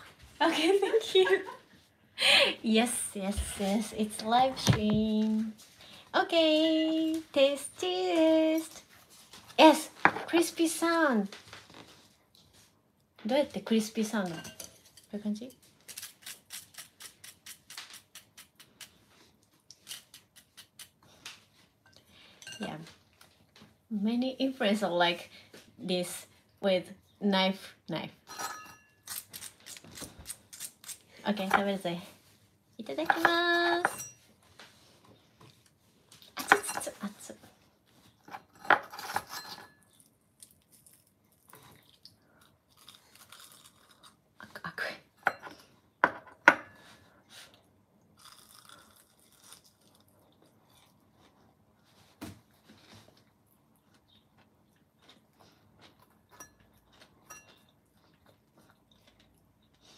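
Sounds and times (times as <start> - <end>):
crunchy fried chicken crust crackling: 15.6 - 21.4, 40.4 - 44.2, 48.2 - 50.8
crunching and chewing: 39.7 - 44.4, 48.0 - 51.6, 53.0 - 59.9.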